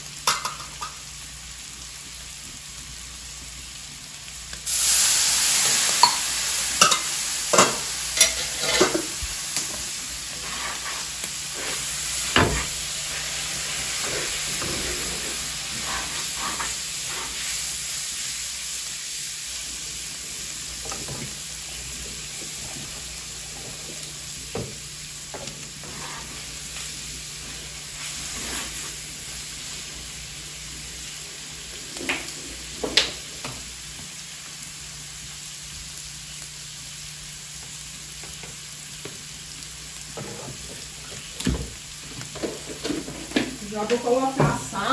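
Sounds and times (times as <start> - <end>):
meat and onion sizzling: 0.0 - 44.9
utensil scraping a pan: 7.6 - 17.6, 25.8 - 26.6.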